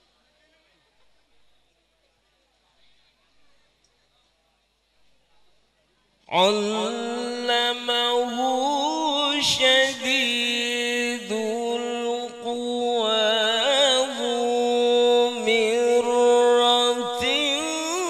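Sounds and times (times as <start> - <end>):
man chanting into a microphone: 6.3 - 18.0.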